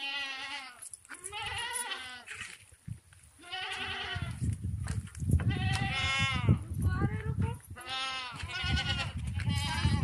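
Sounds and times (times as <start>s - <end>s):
goats bleating: 0.0s - 2.5s, 3.4s - 4.4s, 7.8s - 10.0s.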